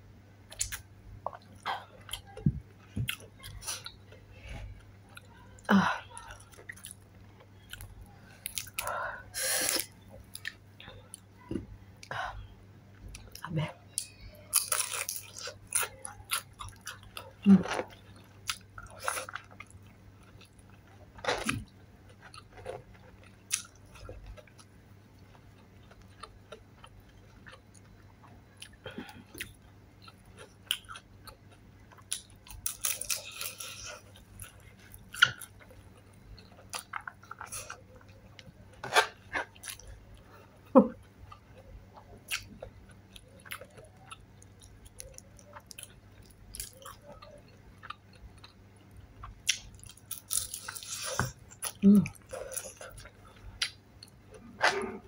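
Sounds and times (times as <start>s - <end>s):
person chewing crunchy food: 0.5s - 5.3s, 6.2s - 11.2s, 14.5s - 55.0s.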